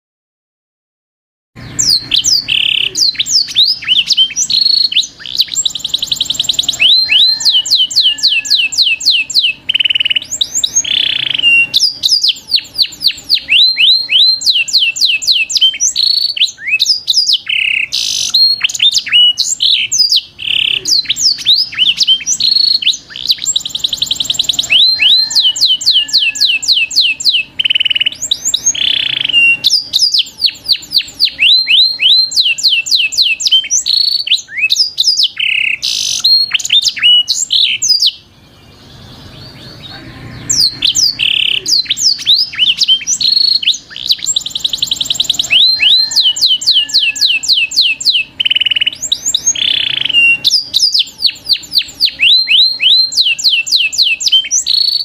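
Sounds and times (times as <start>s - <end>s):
songbirds chorus: 1.6s - 55.0s.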